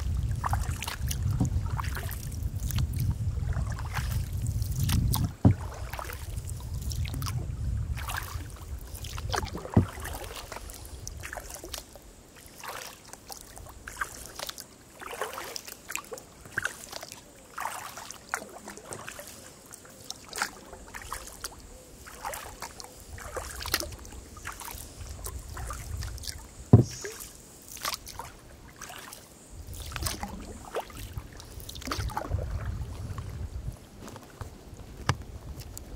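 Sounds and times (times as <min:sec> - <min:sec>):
paddle splashing in water: 0:00.0 - 0:35.9
sharp knocks: 0:26.8 - 0:27.0.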